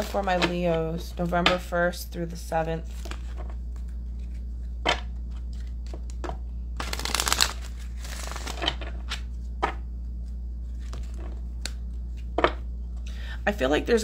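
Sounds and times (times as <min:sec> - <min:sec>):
low hum: 0:00.0 - 0:14.0
cards being shuffled: 0:02.9 - 0:09.5, 0:10.2 - 0:13.0.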